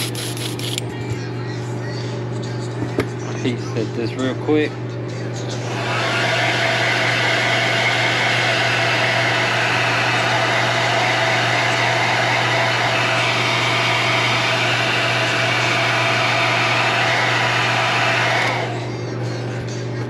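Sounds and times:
heat gun blowing hot air: 0.0s - 0.8s.

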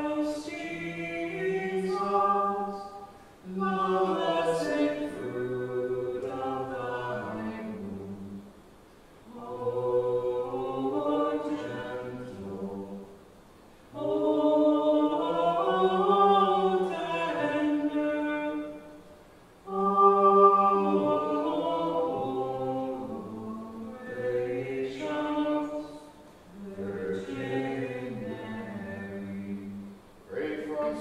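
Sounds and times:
choir singing plainchant: 0.0s - 8.5s, 9.2s - 31.0s.

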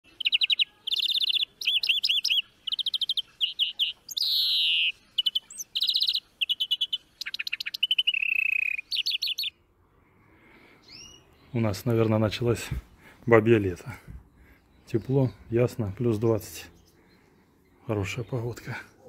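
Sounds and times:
songbird singing trills: 0.0s - 9.7s, 10.8s - 12.5s.

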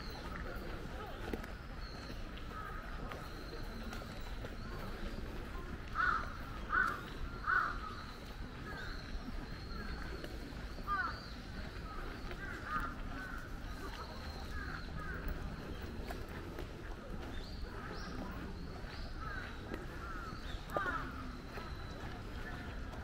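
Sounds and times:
bird calls and chirps: 0.0s - 23.0s
crow cawing: 6.0s - 7.8s.

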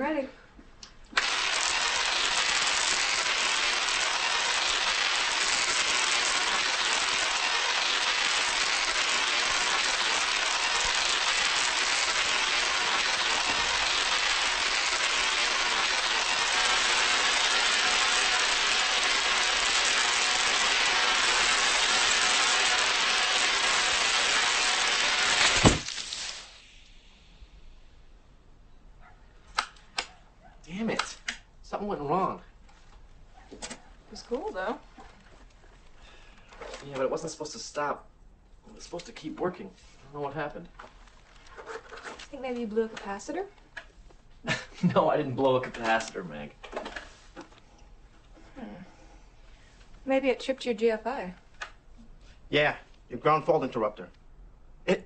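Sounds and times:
tesla coil sparking: 1.1s - 28.1s.

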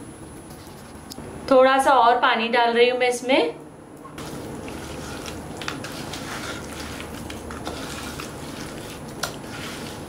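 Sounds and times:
hands squelching fish in paste: 4.2s - 10.0s.

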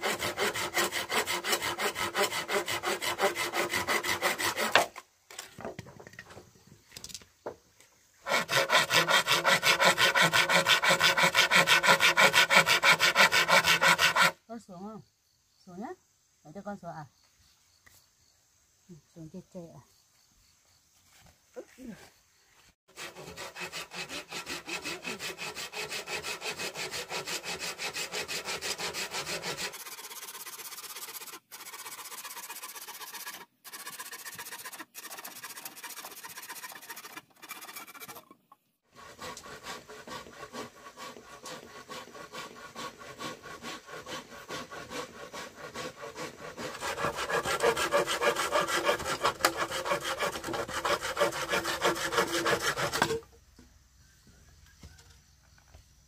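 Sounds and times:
saw cutting bamboo: 0.0s - 5.5s, 8.2s - 14.4s, 22.9s - 53.3s.

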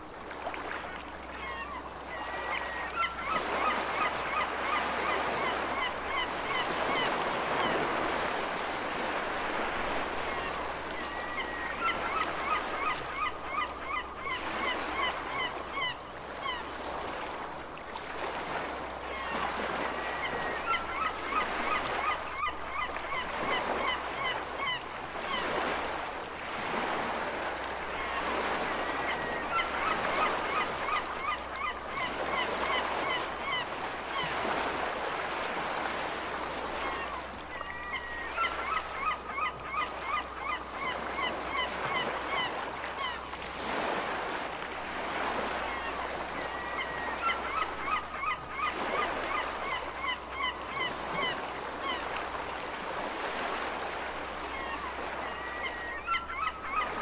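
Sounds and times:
seagulls calling: 1.3s - 8.0s, 9.5s - 16.8s, 19.1s - 26.0s, 27.9s - 35.2s, 36.6s - 43.9s, 45.0s - 52.3s, 52.9s - 57.0s.

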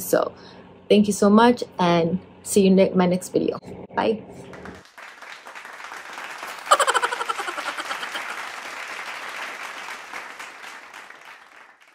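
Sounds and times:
crowd applause: 4.5s - 11.9s.

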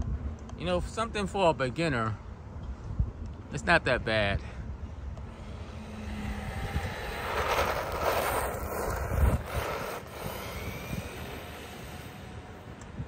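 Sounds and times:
rc car motor and tyres whirring: 5.1s - 13.0s.

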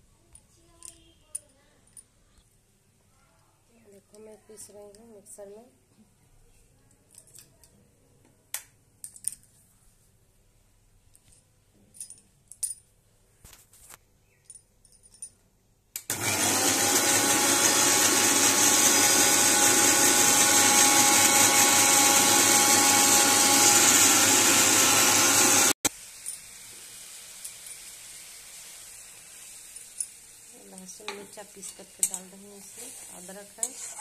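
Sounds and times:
electric mixer grinder running: 16.1s - 25.9s
faint steady hiss: 25.9s - 34.0s.

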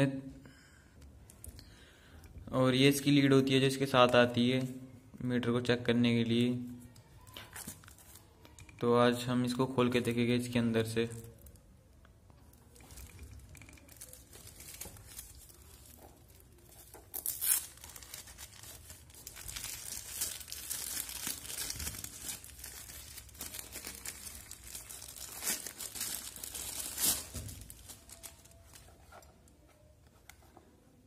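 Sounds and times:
plastic wrapping crinkling: 6.9s - 8.8s, 12.4s - 29.9s
sharp plastic crackle: 12.4s - 29.0s.

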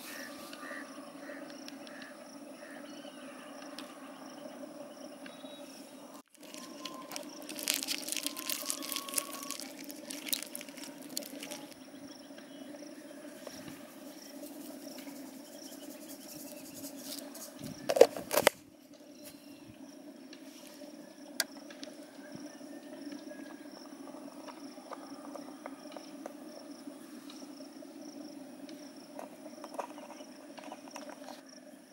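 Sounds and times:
insects chirring: 0.0s - 31.9s
salt pouring into plastic bowl: 6.4s - 11.8s.

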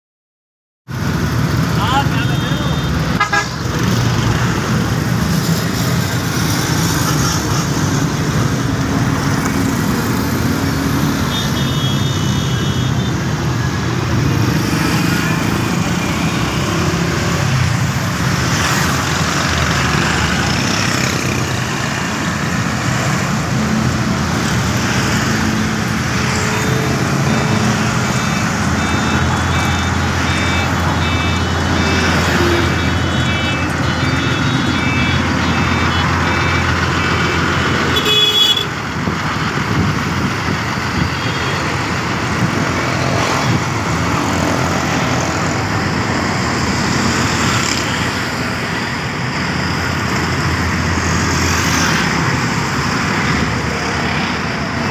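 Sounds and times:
motorcycles passing: 0.9s - 54.9s
passing road traffic: 0.9s - 54.9s
road roller diesel engine running: 0.9s - 54.9s
high beeping tones: 25.0s - 37.8s.

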